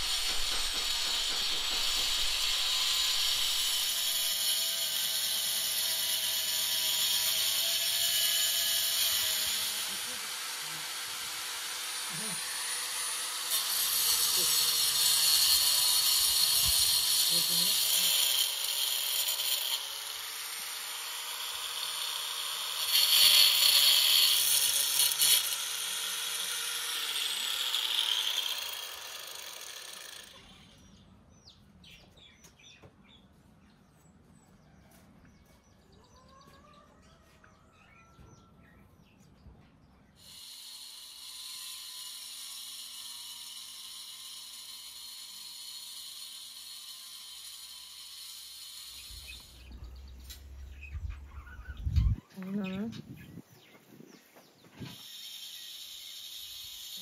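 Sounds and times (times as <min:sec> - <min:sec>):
angle grinder whining: 0:00.0 - 0:31.0, 0:40.2 - 0:52.7, 0:54.8 - 0:57.0
birds chirping faintly: 0:49.0 - 0:54.8.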